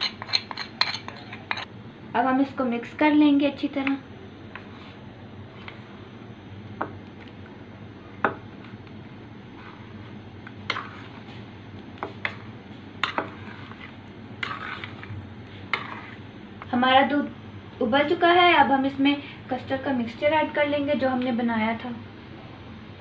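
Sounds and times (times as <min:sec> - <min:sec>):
metal spoon stirring in glass bowl: 0:00.0 - 0:01.7, 0:13.0 - 0:16.2.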